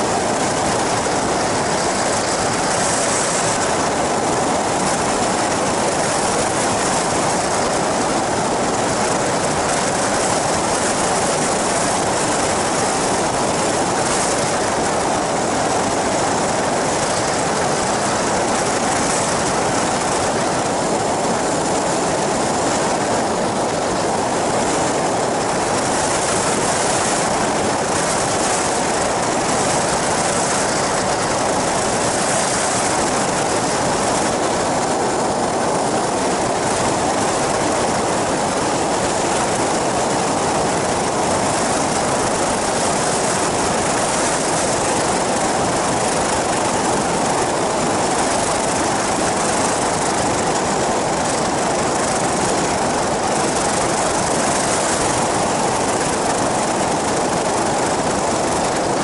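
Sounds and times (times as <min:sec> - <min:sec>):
aircraft engine noise: 0:00.0 - 0:59.0
wind on microphone: 0:00.0 - 0:59.0.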